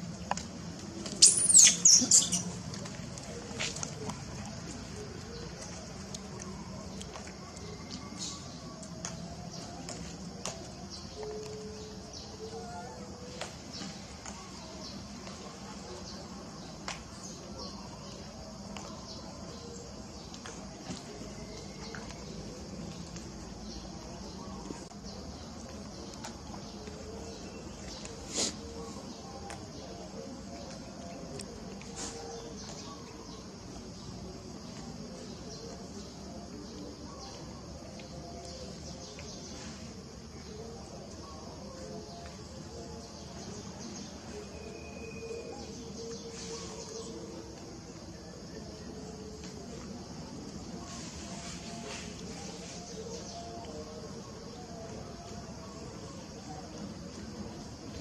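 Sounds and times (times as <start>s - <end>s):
insects buzzing: 0.0s - 58.0s
outdoor background noise: 0.0s - 58.0s.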